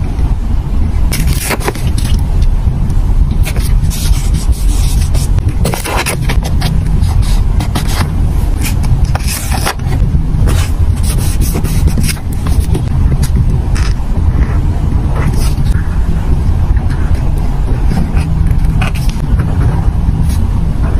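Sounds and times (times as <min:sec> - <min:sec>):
steady low rumble: 0:00.0 - 0:20.9
fingers rubbing paper stickers: 0:01.1 - 0:02.3, 0:03.3 - 0:20.5.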